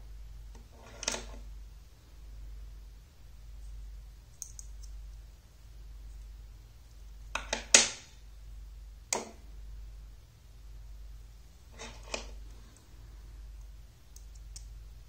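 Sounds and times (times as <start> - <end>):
steady low hum: 0.0 - 15.0
magnets clicking together: 4.3 - 5.0, 13.6 - 14.7.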